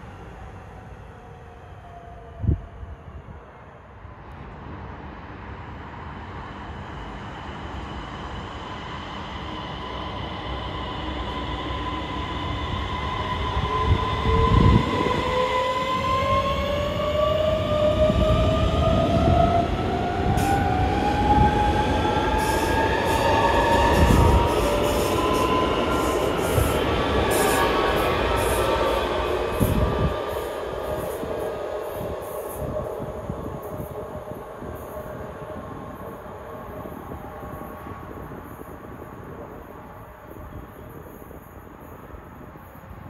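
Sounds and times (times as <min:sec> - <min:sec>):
wheels rumbling on rail: 0:12.2 - 0:43.0.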